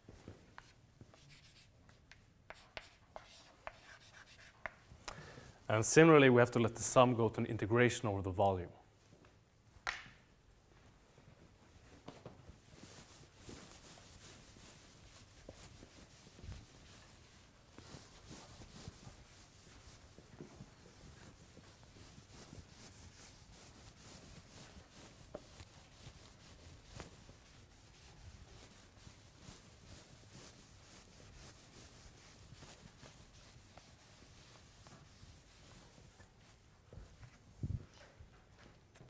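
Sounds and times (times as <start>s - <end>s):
sponge wiping chalkboard: 0.2s - 4.8s, 11.9s - 38.0s.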